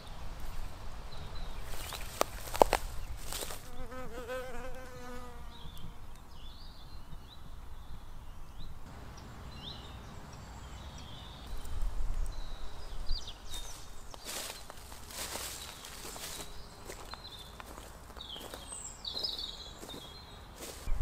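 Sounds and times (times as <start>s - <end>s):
footsteps through grass: 1.6s - 3.8s, 13.0s - 21.0s
flying insect buzzing: 3.2s - 6.0s.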